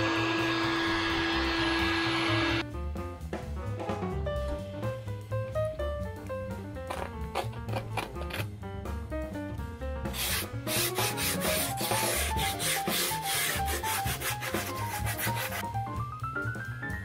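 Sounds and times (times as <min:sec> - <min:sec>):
background music: 0:00.0 - 0:17.0
sandpaper rubbing on wood: 0:10.1 - 0:15.6.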